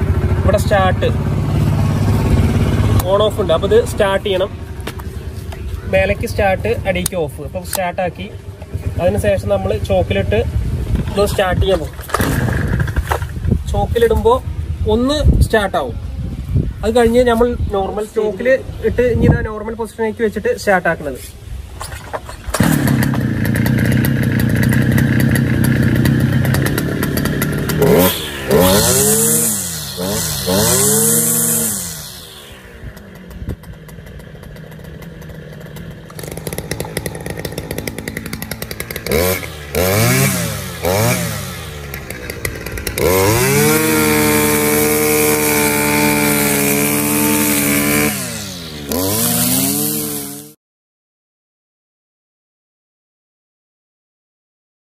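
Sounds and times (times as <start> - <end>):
grass cutting: 0.0 - 14.4, 21.0 - 50.6
brush cutter engine revving: 0.0 - 14.8, 21.8 - 50.6.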